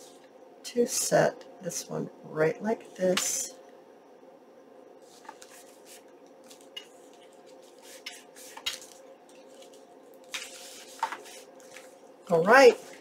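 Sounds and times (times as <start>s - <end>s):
faint steady hum: 0.0s - 13.0s
paper envelopes rustling: 5.0s - 12.0s.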